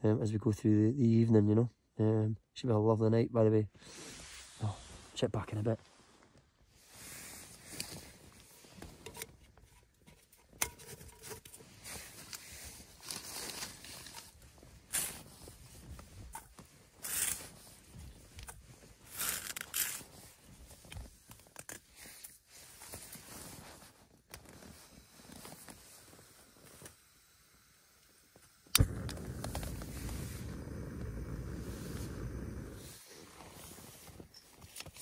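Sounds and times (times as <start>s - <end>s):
rustling of tent fabric: 3.8s - 26.8s, 29.1s - 35.0s
stove parts clicking: 9.0s - 11.6s.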